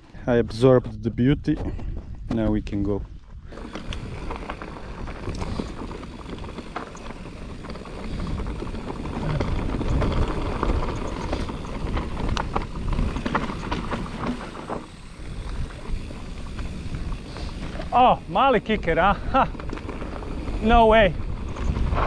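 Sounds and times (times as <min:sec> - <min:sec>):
bike clicking and rattling: 0:01.6 - 0:22.0
tyres rumbling over ground: 0:03.5 - 0:22.0
wind on microphone: 0:19.9 - 0:22.0.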